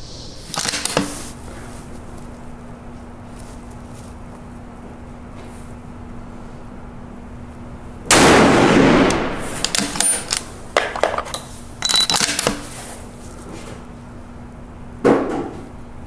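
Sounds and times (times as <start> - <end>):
rifle shot: 8.1 - 10.3.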